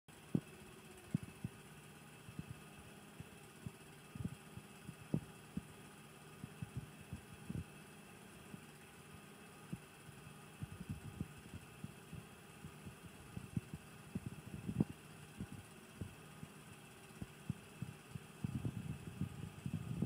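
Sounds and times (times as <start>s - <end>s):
soft low thumps: 3.2s - 5.8s, 6.4s - 7.7s, 10.6s - 16.5s, 17.2s - 20.0s.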